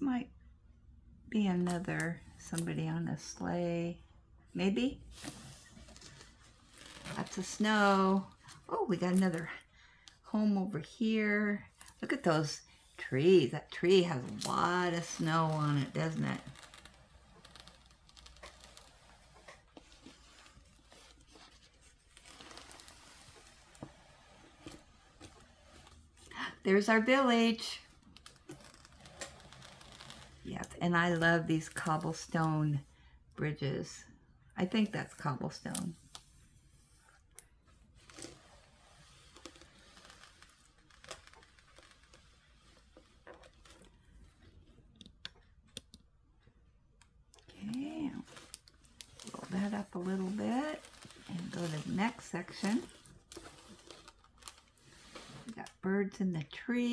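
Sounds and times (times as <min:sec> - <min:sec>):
canvas rustling: 0:05.0 - 0:08.4, 0:13.9 - 0:26.3, 0:37.8 - 0:44.8, 0:47.6 - 0:55.6
plastic crinkling and clicks: 0:50.7 - 0:51.9, 0:52.5 - 0:54.9.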